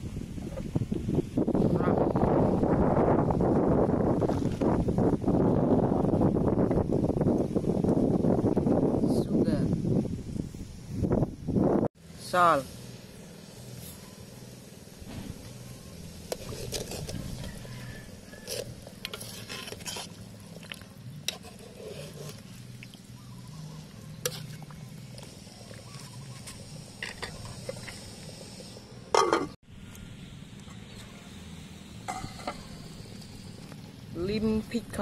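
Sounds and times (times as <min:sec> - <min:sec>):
metal ladle scraping a pot: 0:16.1 - 0:23.0, 0:23.6 - 0:28.1.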